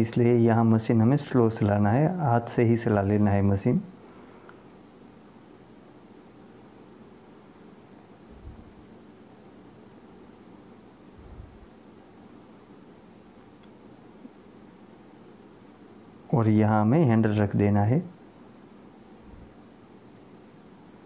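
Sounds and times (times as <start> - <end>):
cricket trilling: 0.0 - 21.0.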